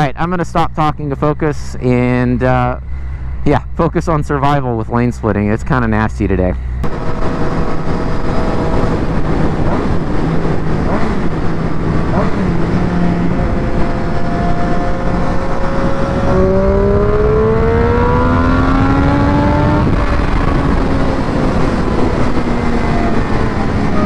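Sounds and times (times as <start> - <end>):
motorcycle engine accelerating: 6.4 - 24.0
wind noise on microphone: 6.8 - 24.0.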